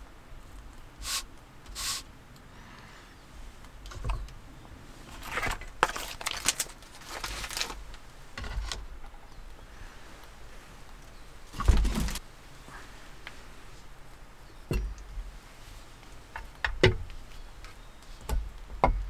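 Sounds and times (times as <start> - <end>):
plastic package crinkling: 5.2 - 8.0.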